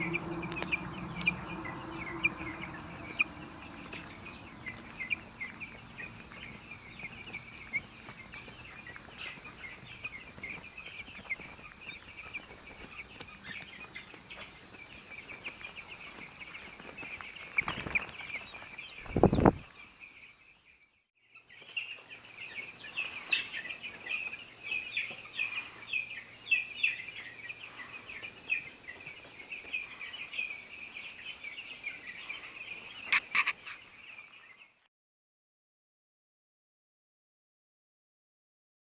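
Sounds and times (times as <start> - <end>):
chicks peeping: 0.0 - 34.8
sharp clicks: 33.1 - 33.8.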